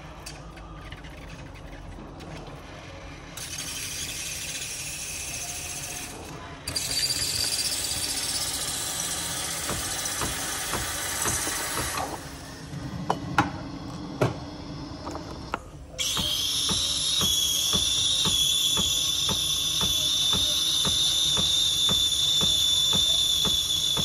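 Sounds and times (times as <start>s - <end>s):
steam wand hissing with whistle: 16.0s - 24.0s.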